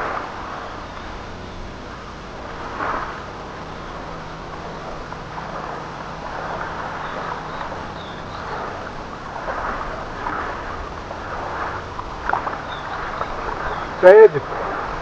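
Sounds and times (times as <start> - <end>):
small waves lapping on pebbles: 2.3 - 15.0.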